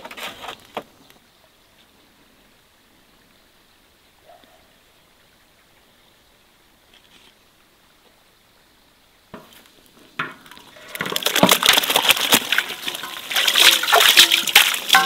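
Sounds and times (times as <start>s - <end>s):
grain mash splashing into water: 10.2s - 15.0s
knocks of enamel basins: 10.2s - 15.0s.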